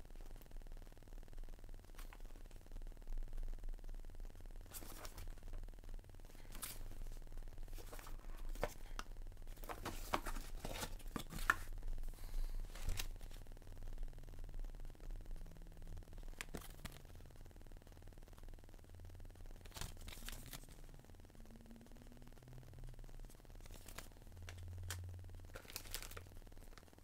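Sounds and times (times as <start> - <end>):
plastic packaging rustling: 6.3 - 11.7, 23.6 - 26.8.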